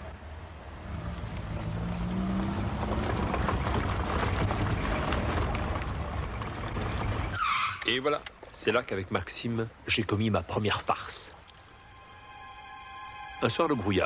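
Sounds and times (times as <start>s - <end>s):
wind and tyre noise: 0.0s - 9.9s
car engine accelerating: 0.8s - 7.0s.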